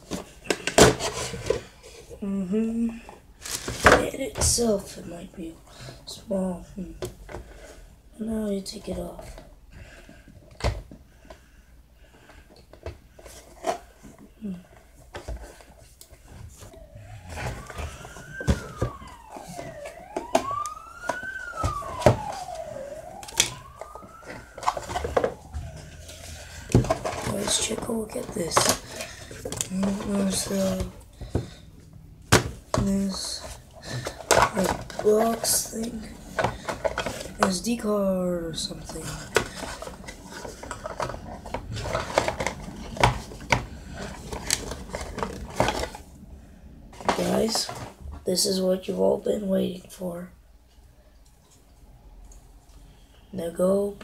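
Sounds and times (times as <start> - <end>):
packaging rustling: 3.3 - 4.7, 12.8 - 37.9, 38.5 - 48.1
siren wailing: 15.4 - 48.0
packaging clicks and taps: 32.3 - 37.5.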